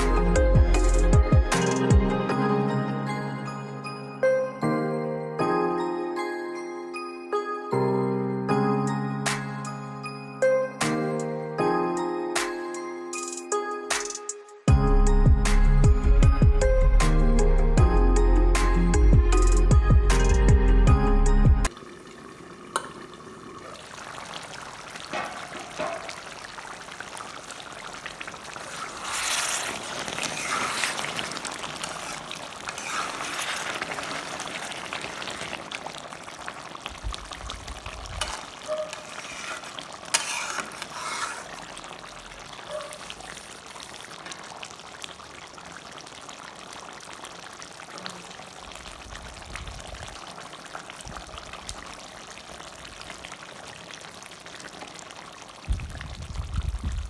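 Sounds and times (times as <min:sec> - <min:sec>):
curry simmering and bubbling: 0:21.7 - 0:57.0
ladle stirring and scraping pan: 0:24.9 - 0:26.6, 0:28.0 - 0:36.0, 0:37.8 - 0:44.3.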